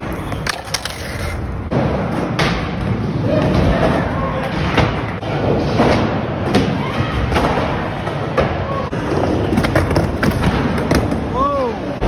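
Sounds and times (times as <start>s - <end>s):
skateboard wheels rolling: 0.0s - 5.7s.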